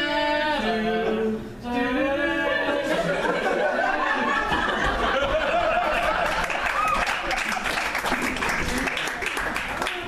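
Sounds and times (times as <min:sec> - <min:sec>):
audience laughter: 0:02.7 - 0:07.9
audience clapping: 0:05.7 - 0:10.0.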